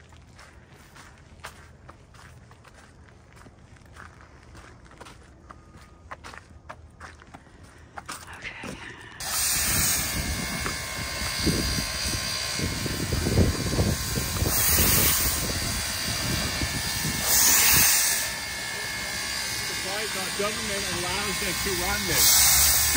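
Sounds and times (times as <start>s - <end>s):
footsteps on gravel: 0.0s - 9.2s
steam hissing: 9.2s - 22.9s.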